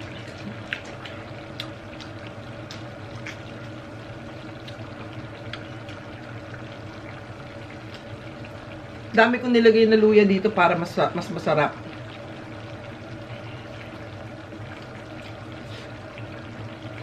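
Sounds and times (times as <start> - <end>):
chewing and eating crab: 0.0 - 3.8
stew bubbling and hissing: 0.0 - 9.1, 11.5 - 17.0.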